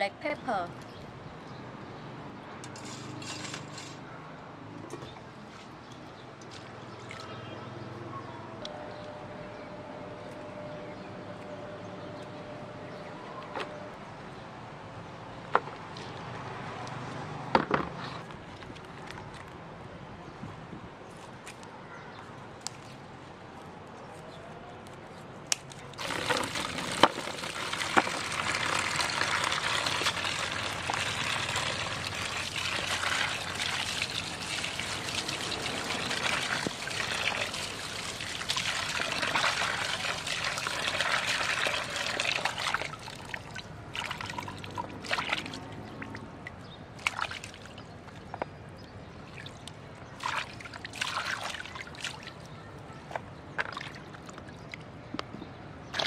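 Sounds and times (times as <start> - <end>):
water pouring onto hands: 25.9 - 46.2, 47.0 - 48.0, 49.3 - 52.5
water splashing in basin: 25.9 - 48.4, 49.3 - 52.6, 53.5 - 54.8.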